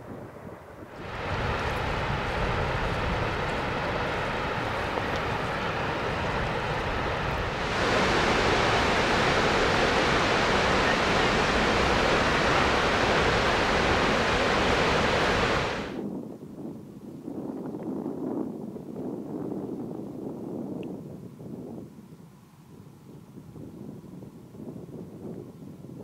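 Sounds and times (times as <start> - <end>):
waterfall rushing: 1.0 - 16.0.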